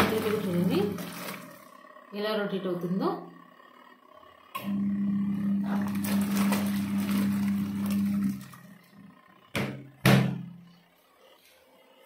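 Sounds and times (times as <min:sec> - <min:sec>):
clothes churning in soapy water: 0:00.0 - 0:01.8, 0:05.5 - 0:08.9
washing machine motor humming: 0:00.0 - 0:12.0.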